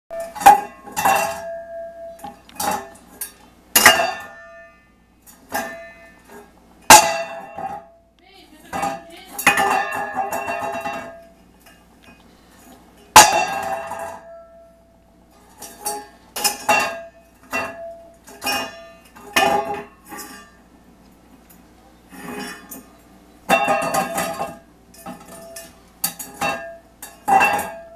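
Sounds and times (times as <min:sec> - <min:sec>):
metal bowl clanging on wooden floor: 0:00.2 - 0:07.9, 0:08.7 - 0:11.8, 0:13.2 - 0:14.7, 0:15.5 - 0:20.6, 0:23.5 - 0:27.9.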